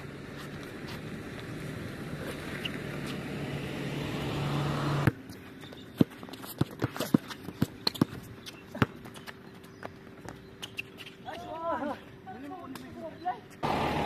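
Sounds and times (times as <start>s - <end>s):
footsteps on hard court: 5.1s - 11.1s
basketball bouncing: 5.9s - 9.2s.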